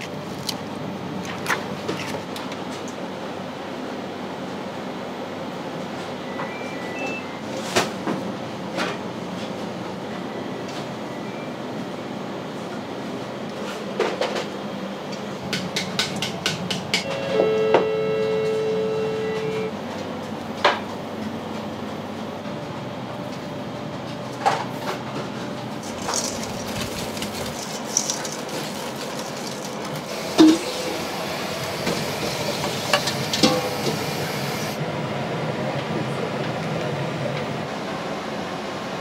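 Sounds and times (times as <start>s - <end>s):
equipment hum: 0.0s - 39.0s
steady machine tone: 17.0s - 19.8s.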